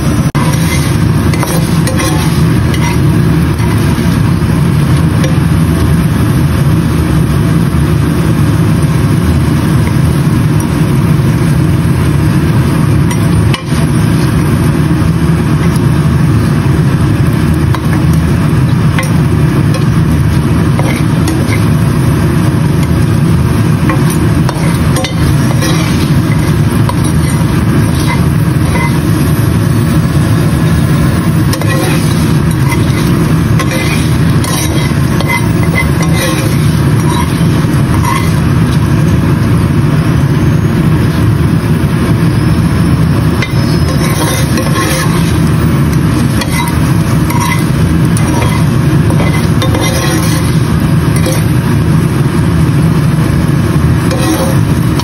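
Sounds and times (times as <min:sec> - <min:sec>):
spatula scraping pan: 0:00.0 - 0:05.6, 0:12.8 - 0:14.2, 0:17.8 - 0:38.8, 0:43.3 - 0:51.7, 0:54.0 - 0:55.0
food frying in oil: 0:00.0 - 0:40.1, 0:41.1 - 0:55.0
steady low rumble: 0:00.0 - 0:55.0.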